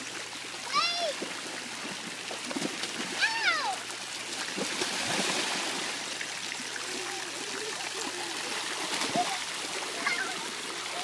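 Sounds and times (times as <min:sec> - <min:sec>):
pool water splashing: 0:00.0 - 0:11.0
faint children's voices: 0:06.8 - 0:11.0.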